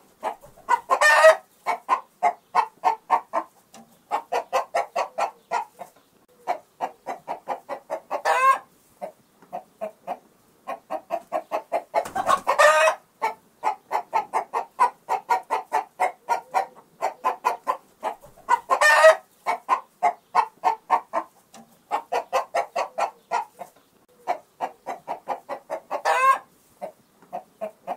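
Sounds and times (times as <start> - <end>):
chicken clucking: 0.0 - 27.9
chicken squawking: 0.2 - 3.5, 4.1 - 8.7, 10.1 - 21.3, 21.9 - 27.9.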